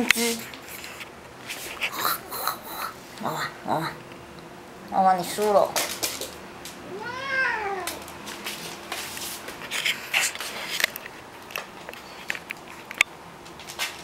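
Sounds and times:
cat meowing: 6.8s - 8.1s
paws and claws on wooden floor: 8.0s - 14.0s.

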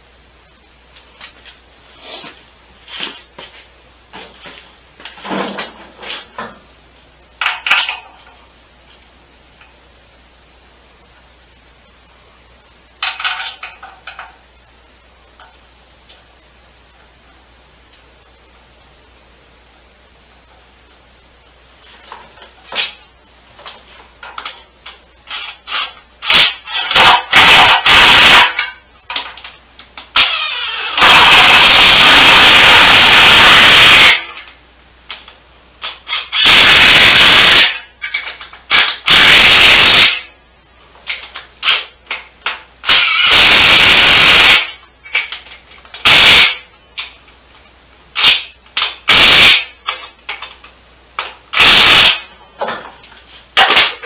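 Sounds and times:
power impact wrench running: 25.3s - 28.6s, 30.2s - 34.3s, 42.8s - 44.7s.

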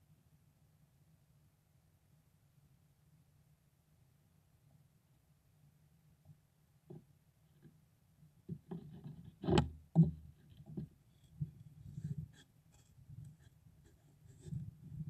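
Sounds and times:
clicks and scratches: 8.5s - 15.0s.

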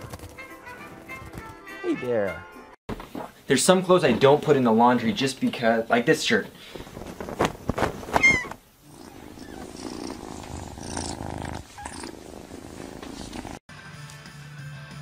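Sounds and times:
kitten purring: 8.3s - 13.6s.

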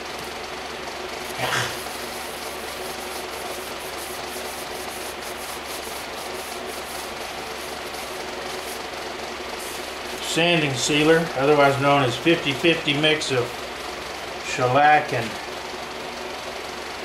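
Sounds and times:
wood lathe humming: 0.0s - 16.8s
paper towel rubbing spinning wood: 1.2s - 13.8s.

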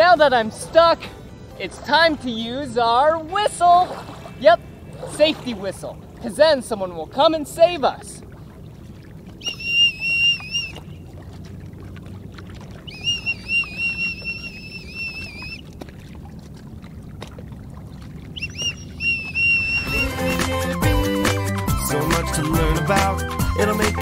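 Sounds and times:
warbling whistle blasts: 9.4s - 11.0s, 12.8s - 15.6s, 18.4s - 20.8s.

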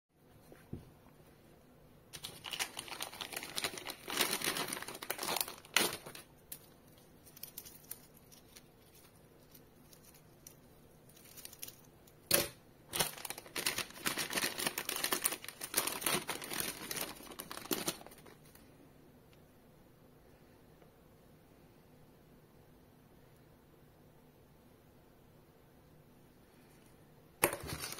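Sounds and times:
plastic packaging crinkling: 2.1s - 18.6s, 27.4s - 27.9s.

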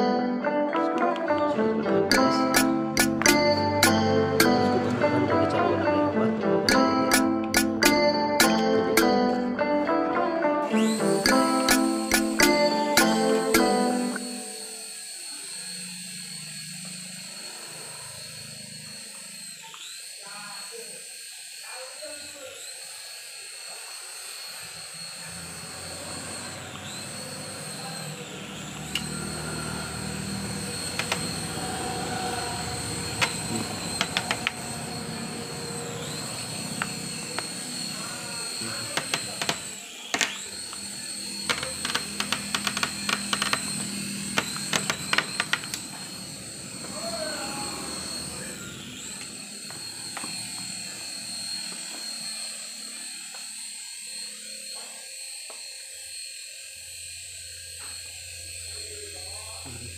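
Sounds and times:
toy helicopter rotors whining: 2.1s - 9.6s, 10.6s - 59.9s
sharp clicks: 6.7s - 9.1s.

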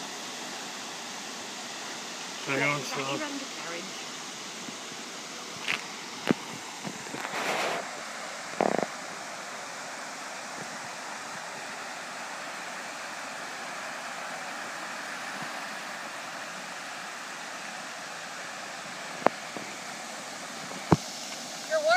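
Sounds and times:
creek water flowing over concrete: 0.0s - 21.9s
burst of noise: 5.6s - 9.3s.

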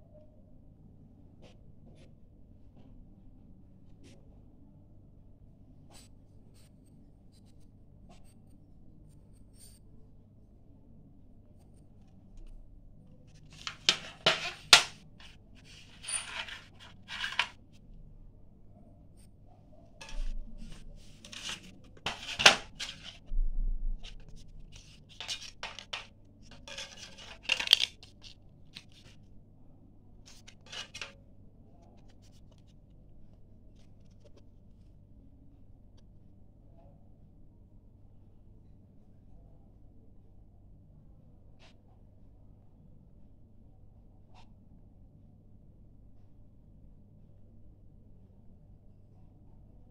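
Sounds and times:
plastic clicks and scrapes: 13.3s - 17.6s, 20.0s - 23.3s, 24.0s - 29.2s, 30.3s - 31.2s.

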